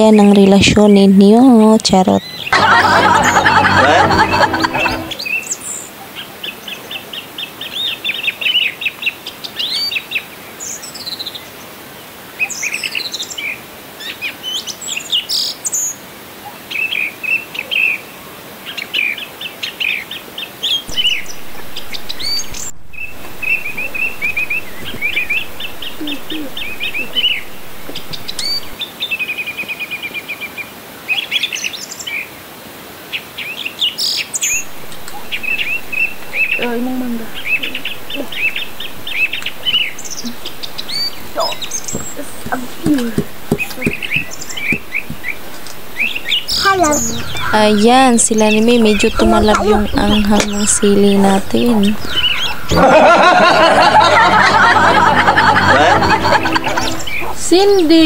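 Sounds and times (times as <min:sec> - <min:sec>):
small birds chirping: 0:20.7 - 0:28.8, 0:34.0 - 0:52.8.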